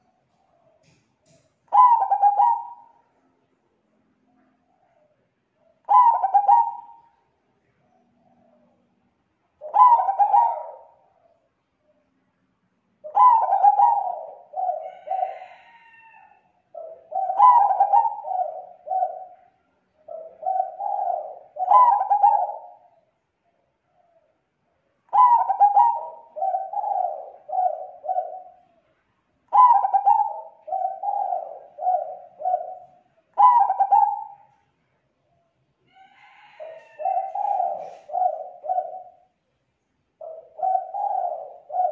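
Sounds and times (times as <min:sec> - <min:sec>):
dove cooing: 0:00.0 - 0:03.1, 0:04.3 - 0:07.2, 0:09.6 - 0:11.5, 0:13.0 - 0:24.3, 0:25.1 - 0:28.9, 0:29.5 - 0:34.7, 0:35.9 - 0:39.4, 0:40.2 - 0:41.9.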